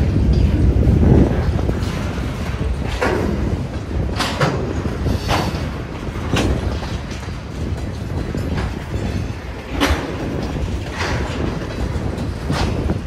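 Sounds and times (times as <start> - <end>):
rumble of steel wheels on rail: 0.0 - 13.0.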